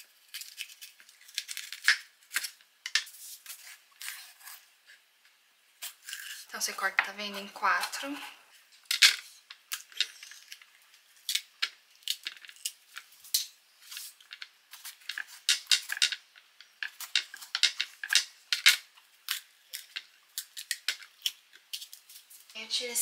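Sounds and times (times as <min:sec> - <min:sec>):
knife cutting bell peppers: 0:00.0 - 0:04.7, 0:05.8 - 0:08.3.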